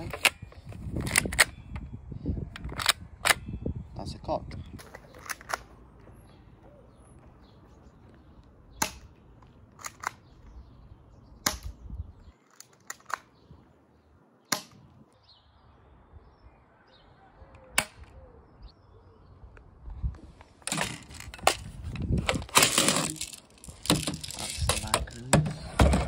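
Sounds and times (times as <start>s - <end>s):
bb pistol shots: 8.8s - 9.2s, 11.4s - 11.8s.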